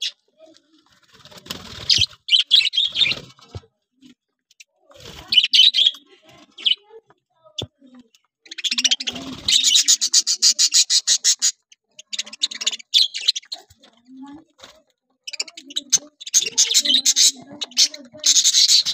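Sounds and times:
budgerigars chattering: 0:01.8 - 0:03.2, 0:05.3 - 0:06.8, 0:08.4 - 0:13.8, 0:15.3 - 0:18.9.

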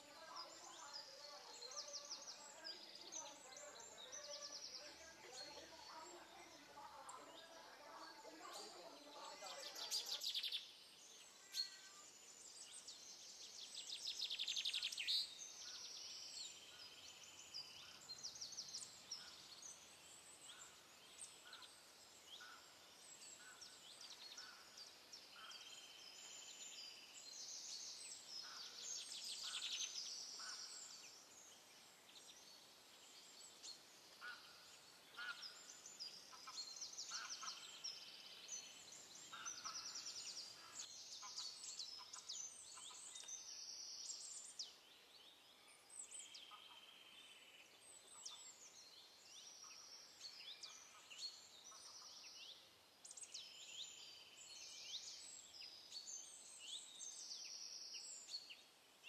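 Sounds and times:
birds chirping and calling: 0:00.0 - 0:12.0, 0:13.7 - 0:32.5, 0:33.1 - 0:44.8.

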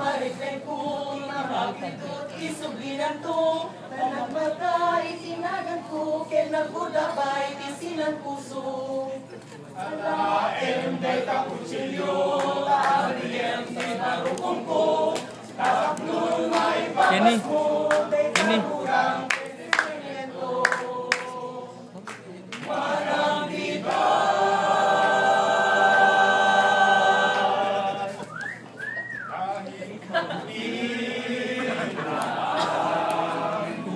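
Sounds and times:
group singing a cappella: 0:00.0 - 0:28.4, 0:29.4 - 0:33.9.

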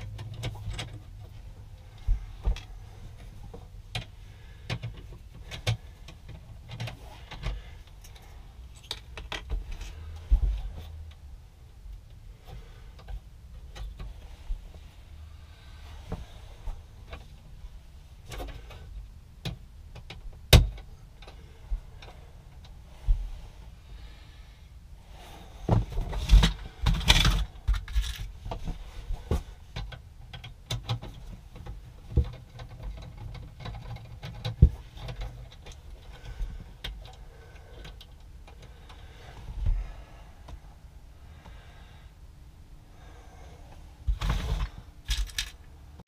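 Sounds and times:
hands handling small parts and tools: 0:00.0 - 0:11.3, 0:25.7 - 0:39.8, 0:44.1 - 0:45.8.

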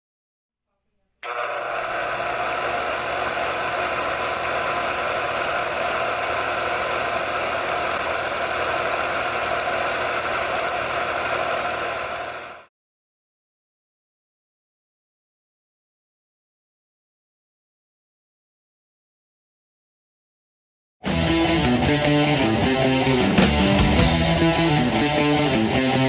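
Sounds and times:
film projector whirring: 0:01.2 - 0:12.7.

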